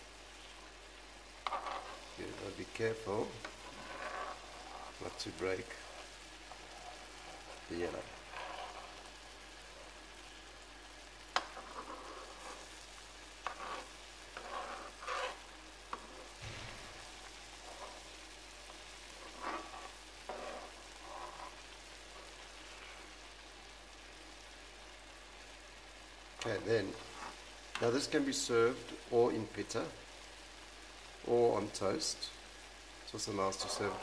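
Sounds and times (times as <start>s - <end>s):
sauce sizzling in a frying pan: 0.0s - 34.0s
metal spoon stirring and scraping: 1.4s - 10.0s, 11.3s - 12.8s, 13.4s - 23.2s, 26.9s - 27.9s, 33.4s - 34.0s.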